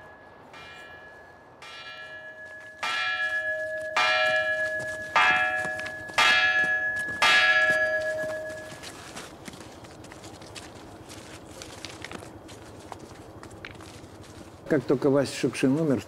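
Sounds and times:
bell tolling: 0.0s - 8.9s.

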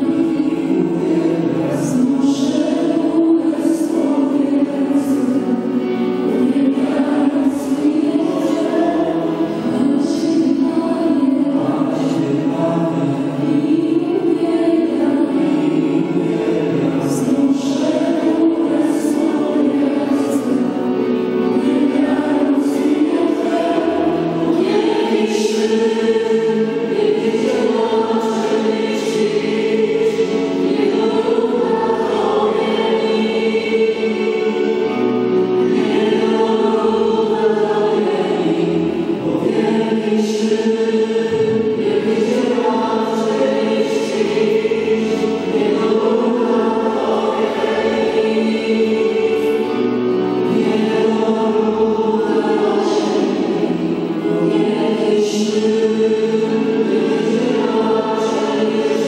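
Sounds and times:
choir singing: 0.0s - 59.0s.

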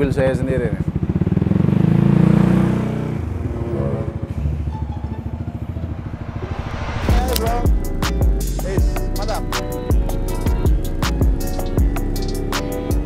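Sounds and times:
scooter engine running: 0.4s - 6.1s
music with hard beat: 6.5s - 13.0s.

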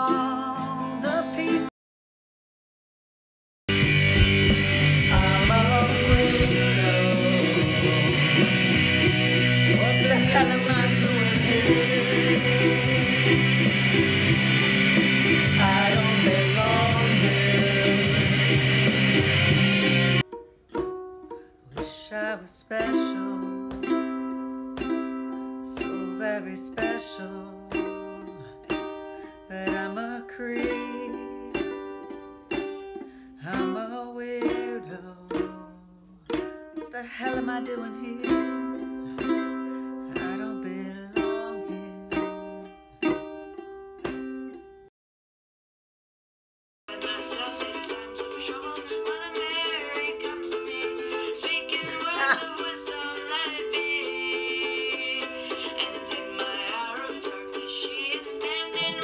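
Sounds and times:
ukulele strumming: 0.0s - 1.7s, 3.7s - 44.9s, 46.9s - 59.0s
woman singing: 0.0s - 1.7s, 5.0s - 14.6s, 15.2s - 18.8s, 21.7s - 24.2s, 24.8s - 31.9s, 33.4s - 42.1s, 46.9s - 59.0s
loud music with singing: 3.8s - 20.2s, 46.9s - 59.0s.

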